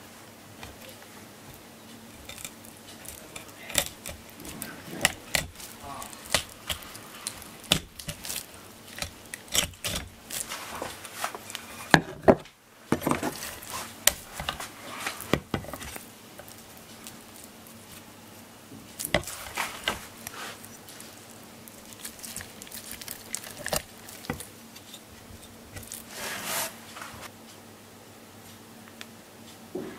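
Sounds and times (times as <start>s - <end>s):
knife cutting fish: 2.2s - 10.6s.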